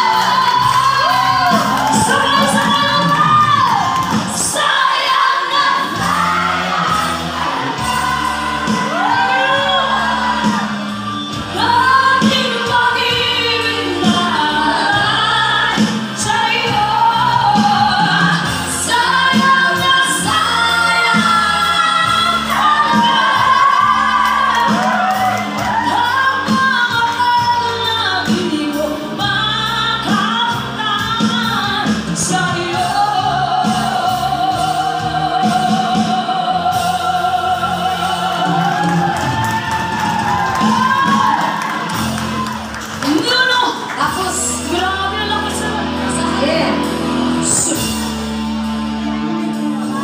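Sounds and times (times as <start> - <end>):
woman singing lead vocals: 0.0 - 48.2, 49.0 - 50.0.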